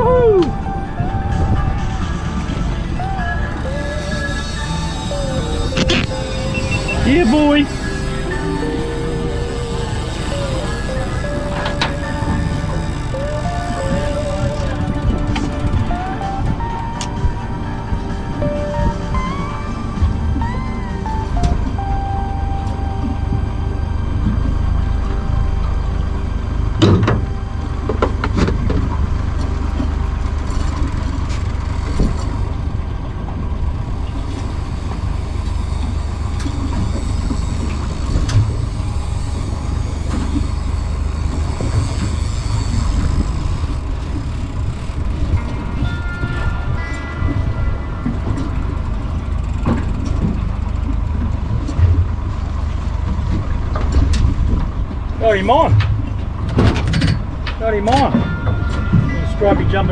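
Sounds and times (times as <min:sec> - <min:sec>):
outboard motor running: 0:00.0 - 0:59.9.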